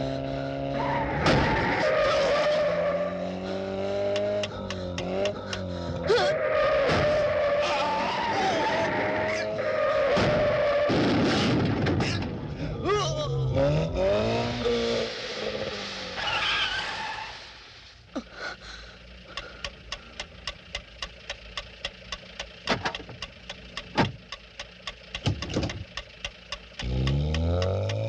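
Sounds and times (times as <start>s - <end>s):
engine revving: 0.0s - 12.0s, 12.6s - 17.0s, 19.2s - 28.0s
car tyres squealing: 0.0s - 18.0s
mechanical ticking: 19.2s - 28.0s.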